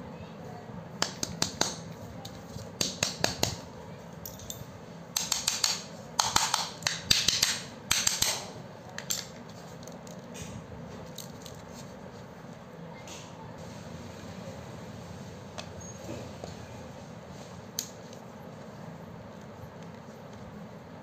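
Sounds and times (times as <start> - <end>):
metal parts scraping and rattling: 11.0 - 11.9.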